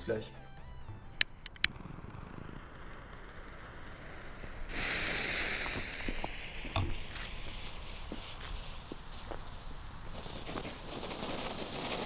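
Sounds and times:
sharp clicks: 1.1s - 3.5s
firework fountain hissing: 1.3s - 12.0s.

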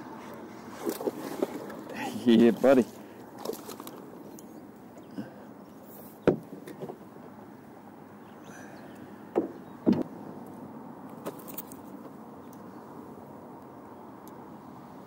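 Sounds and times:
knocks on canoe hull: 6.2s - 6.8s, 9.3s - 10.0s.

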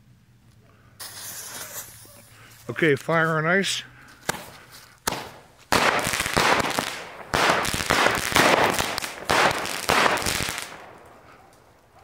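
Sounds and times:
firework shots with hiss: 1.0s - 2.4s, 4.2s - 11.2s.

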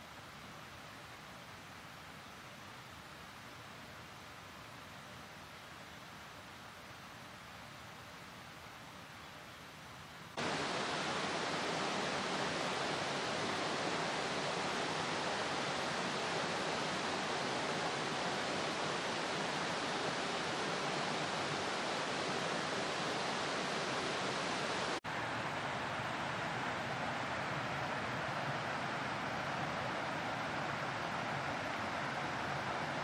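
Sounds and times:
stream rushing: 10.3s - 33.0s.

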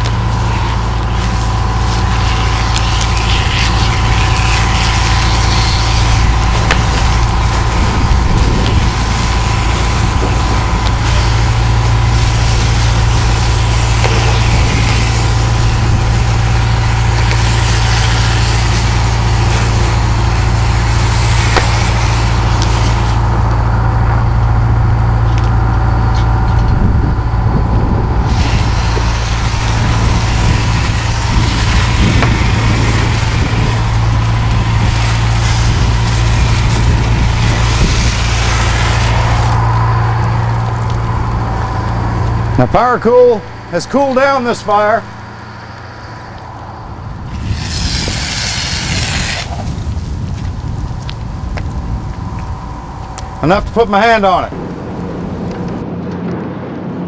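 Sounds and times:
hose nozzle spraying hiss: 0.0s - 23.4s, 28.2s - 39.7s, 47.3s - 49.9s
pump engine drone: 0.0s - 57.0s.

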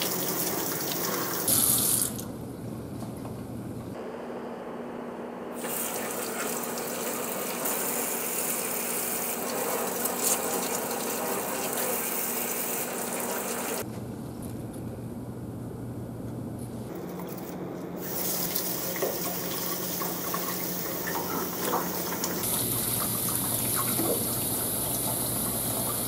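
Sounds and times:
tap water splashing in sink: 18.5s - 26.0s.

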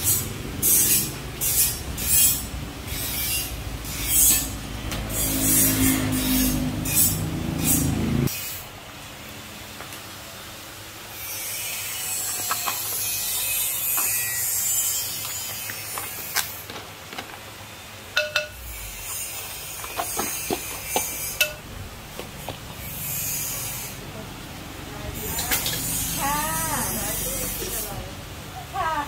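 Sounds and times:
spoon and pestle knocking mortar: 18.2s - 18.7s, 20.0s - 21.6s.

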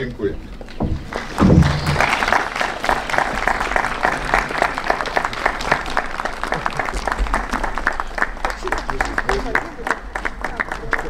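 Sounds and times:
short low thump: 0.8s - 2.4s
audience applauding: 1.0s - 11.0s.

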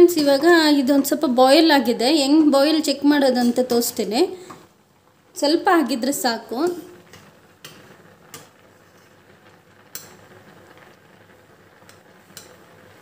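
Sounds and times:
boiling water bubbling: 3.6s - 13.0s.

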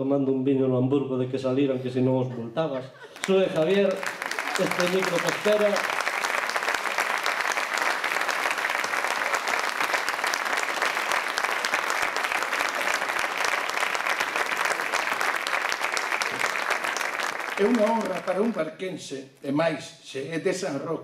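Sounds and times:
audience applauding: 3.0s - 18.8s.

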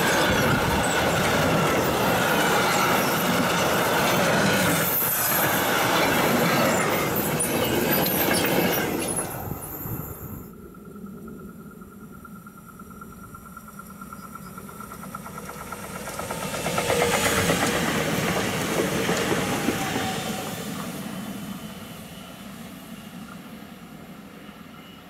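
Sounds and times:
rail clicks: 0.0s - 10.4s, 13.7s - 21.1s
train passing: 0.0s - 25.0s.

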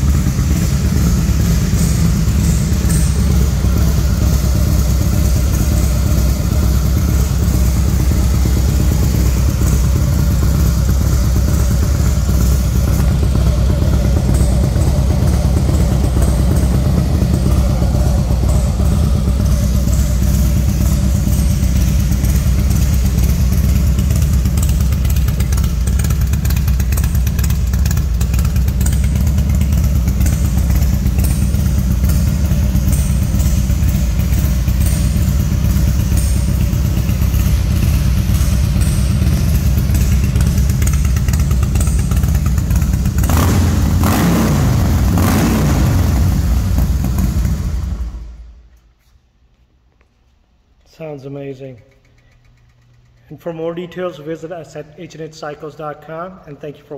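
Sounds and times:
motorcycle engine revving: 0.0s - 48.6s
motorcycle engine idling: 0.0s - 48.7s.

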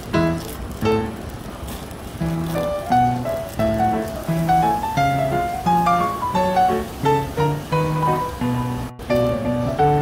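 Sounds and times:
plucked instrumental music: 2.4s - 10.0s.

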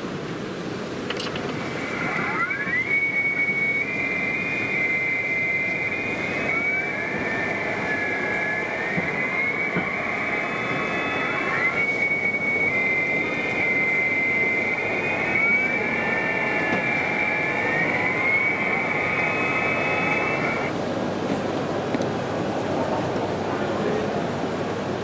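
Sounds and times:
high electric motor whine: 0.9s - 20.8s.

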